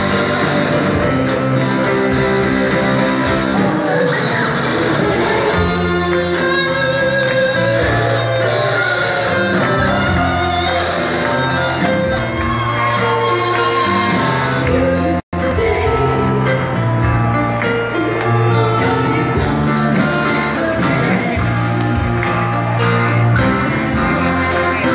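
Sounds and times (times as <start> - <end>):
bass guitar: 0.0 - 24.9
electric guitar: 0.0 - 24.9
women singing: 12.8 - 16.8, 18.0 - 21.5.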